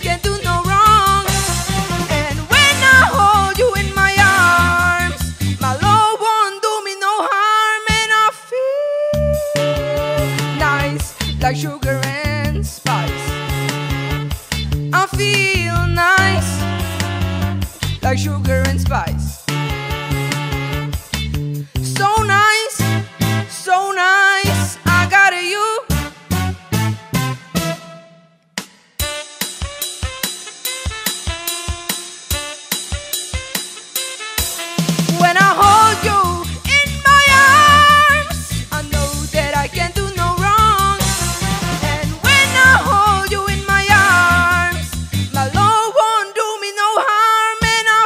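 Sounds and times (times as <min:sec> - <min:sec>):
pop-soul backing track: 0:00.0 - 0:28.0, 0:29.0 - 0:48.0
boy singing into microphone: 0:02.5 - 0:13.4, 0:35.2 - 0:41.0, 0:41.9 - 0:44.8.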